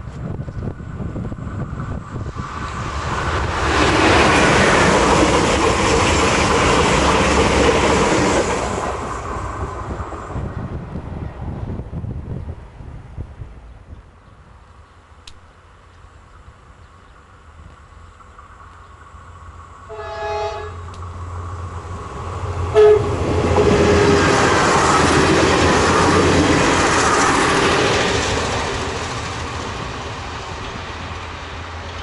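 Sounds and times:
train wheels clattering on rails: 3.1 - 9.1
train horn: 19.8 - 21.0, 22.4 - 24.4.

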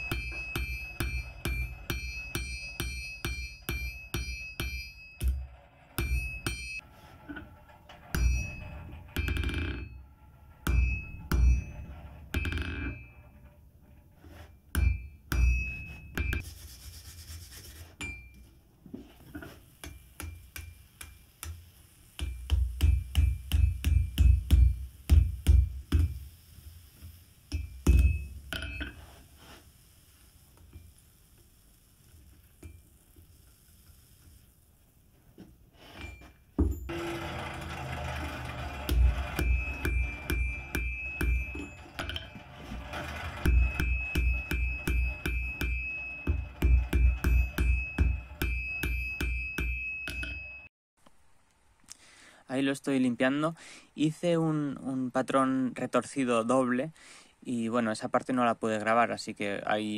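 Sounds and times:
hammer ringing on anvil: 0.0 - 6.8, 8.1 - 10.0, 10.6 - 13.2, 14.7 - 16.4, 38.9 - 42.4, 43.1 - 50.7
scraping sound: 6.8 - 14.6, 36.9 - 45.2.

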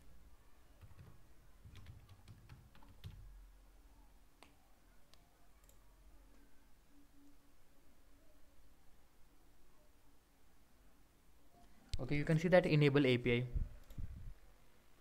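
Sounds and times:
typing on computer keyboard: 0.8 - 3.3.

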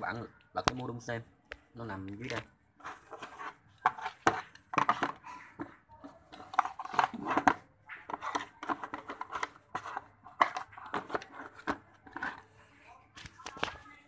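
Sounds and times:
plastic casing clicks and rubbing: 6.3 - 12.4.

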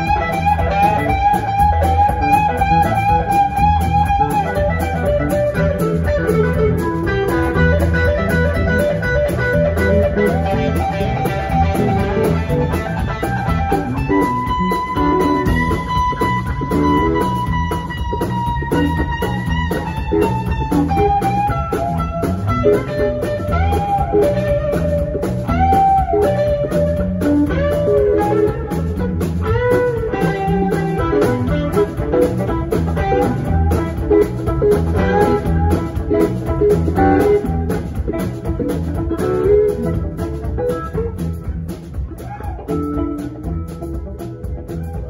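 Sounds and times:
bass guitar: 0.0 - 45.0
drum kit: 0.0 - 45.0
electric guitar lead line: 0.0 - 45.0.

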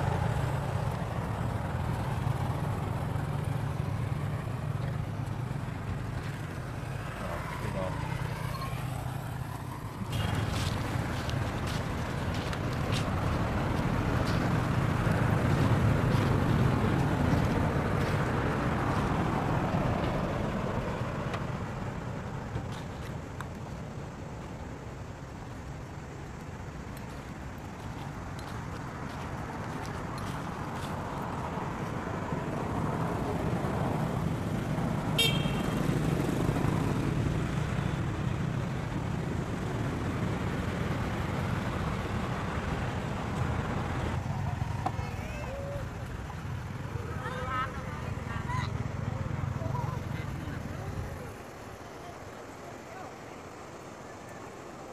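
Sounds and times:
motorbikes going past: 0.0 - 23.3, 27.8 - 53.5
road traffic rumble: 0.0 - 54.9.

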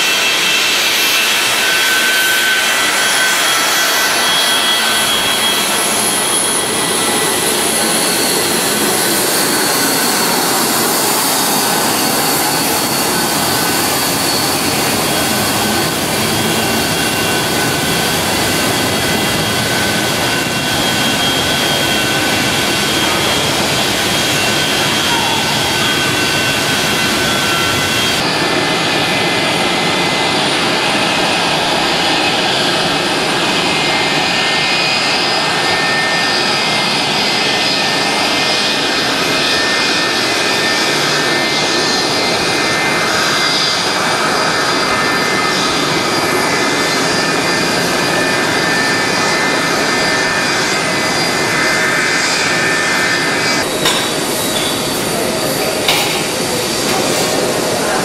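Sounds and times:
jet engines whining: 0.0 - 58.0
jet taxiing past: 0.0 - 58.0.

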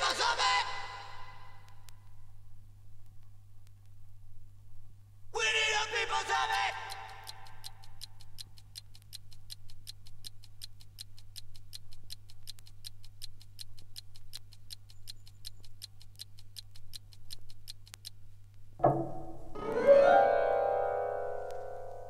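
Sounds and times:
low steady hum: 0.0 - 22.0
fast ticking: 5.4 - 18.4.

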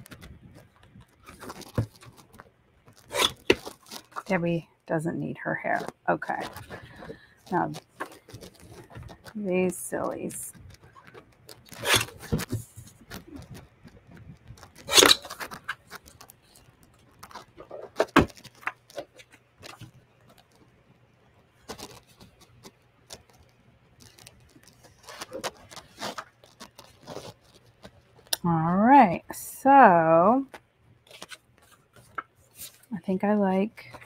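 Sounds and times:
paper rustling and tapping: 0.0 - 4.3, 30.5 - 32.8.

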